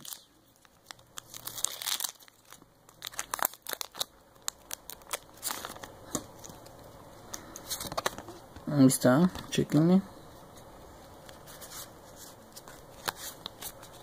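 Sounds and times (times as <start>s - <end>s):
foil wrapper crinkling: 0.0s - 6.9s.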